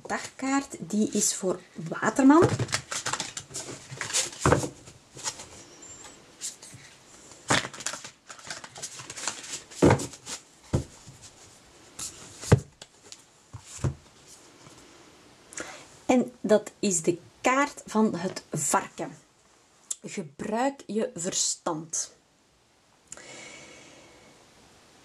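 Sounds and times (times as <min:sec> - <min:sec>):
cards being shuffled: 0:02.4 - 0:05.6, 0:07.5 - 0:10.9.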